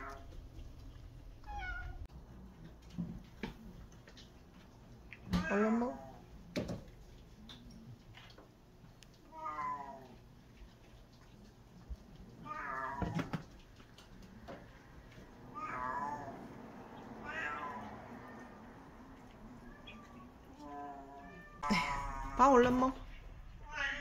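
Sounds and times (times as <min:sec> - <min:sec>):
cat meowing: 0:01.4 - 0:02.0, 0:12.4 - 0:13.4, 0:15.5 - 0:16.4, 0:17.0 - 0:18.6, 0:19.2 - 0:22.4, 0:23.6 - 0:24.0.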